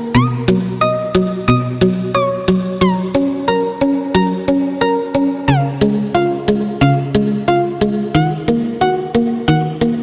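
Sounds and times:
melody of sharply struck notes: 0.2 - 2.4.

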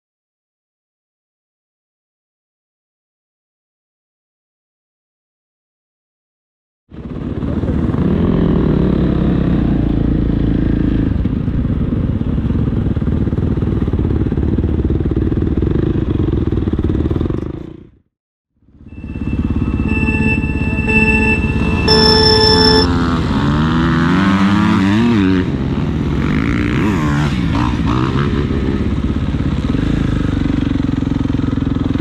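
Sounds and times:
motorcycle engine running: 6.9 - 17.8, 28.5 - 32.0
steady high whine: 18.8 - 23.1.

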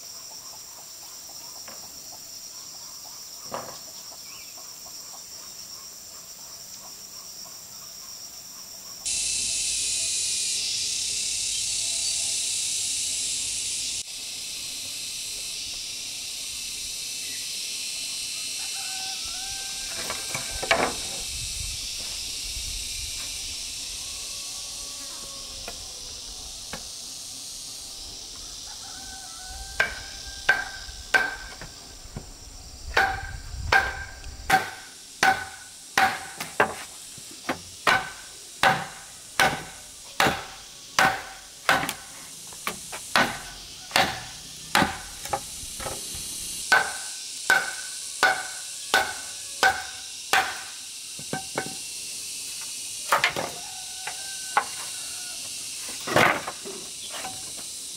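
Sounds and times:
insects buzzing: 0.0 - 57.9
machete chopping bamboo: 29.8 - 31.6, 33.0 - 36.9, 37.5 - 46.0, 46.7 - 51.8.

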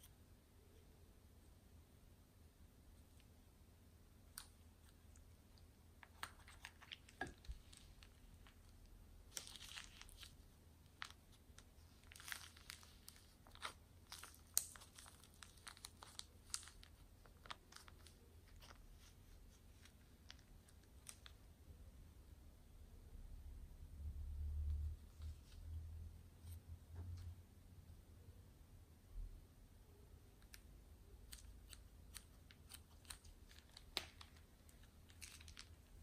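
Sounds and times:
foam beads crinkling and crackling: 4.3 - 21.4, 31.2 - 36.0.

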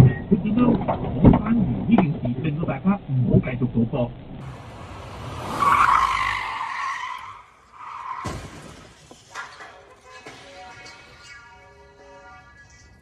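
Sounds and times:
car tyres squealing: 4.4 - 13.0
sharp bang: 8.2 - 11.1.

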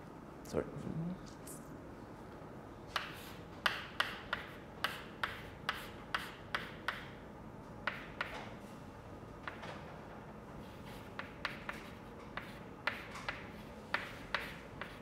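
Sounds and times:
chalk tapping and scratching: 2.9 - 7.2, 7.8 - 8.4, 10.6 - 15.0.

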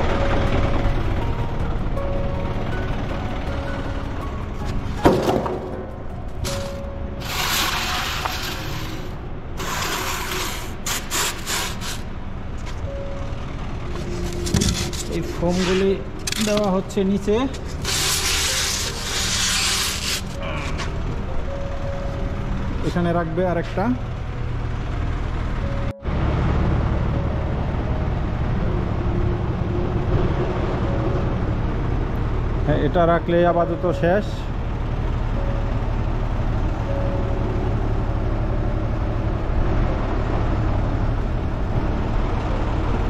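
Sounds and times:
forklift engine running: 0.0 - 43.0
low steady rumble: 0.0 - 43.0
foam blocks scraping on concrete: 6.5 - 12.0, 17.5 - 20.4.

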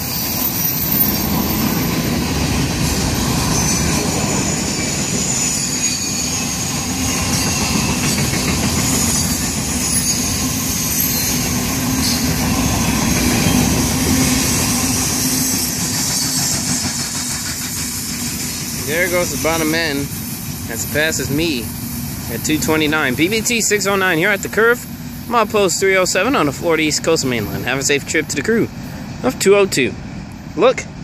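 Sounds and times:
train wheels clattering on rails: 0.0 - 21.7
high wheel squeals: 0.0 - 25.6.

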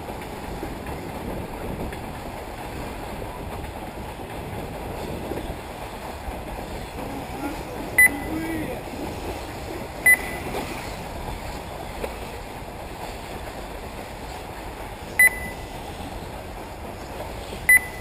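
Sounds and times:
steady outdoor hiss: 0.0 - 18.0
high electronic beeps: 8.0 - 8.4, 10.0 - 10.5, 15.2 - 15.6, 17.7 - 18.0.

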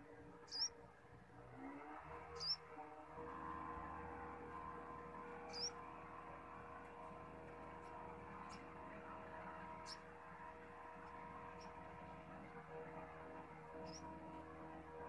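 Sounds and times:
faint background hum: 0.0 - 15.0.

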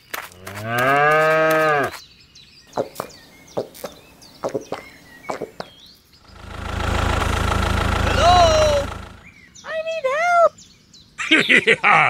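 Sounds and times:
low moo-like call: 0.4 - 2.0
low motor hum: 6.2 - 9.3.

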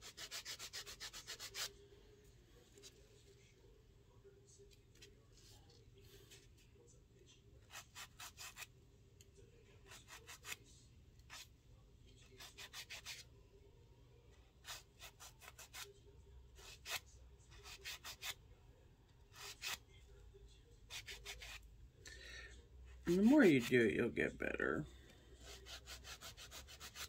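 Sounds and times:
nail file rubbing fingernail: 0.0 - 1.7, 7.6 - 8.7, 9.9 - 10.6, 11.3 - 11.5, 12.3 - 13.3, 14.6 - 15.9, 16.6 - 18.4, 19.3 - 19.8, 20.9 - 21.6, 25.4 - 27.0.

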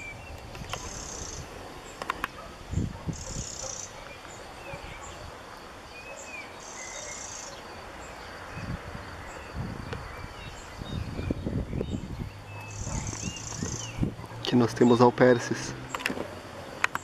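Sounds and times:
wind buffeting microphone: 0.0 - 3.7, 8.4 - 14.5
birds chirping: 0.0 - 17.0.

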